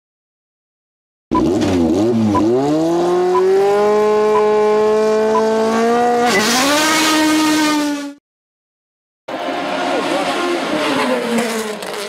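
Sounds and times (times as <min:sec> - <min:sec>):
racing car engine revving: 0:01.3 - 0:08.2, 0:09.3 - 0:12.0
short electronic beeps: 0:04.3 - 0:04.6, 0:06.3 - 0:06.7.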